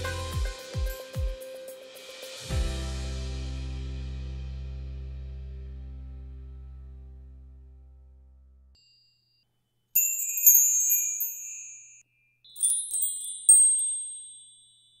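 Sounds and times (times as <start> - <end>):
bright high chimes: 8.8 - 15.0.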